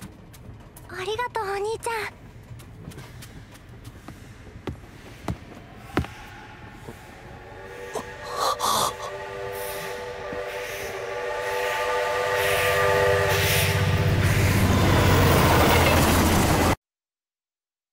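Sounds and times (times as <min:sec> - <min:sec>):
locomotive rhythmic running noise: 0:00.0 - 0:08.4, 0:09.0 - 0:16.8
steam hissing: 0:04.9 - 0:15.4
steam locomotive whistle: 0:06.1 - 0:14.9.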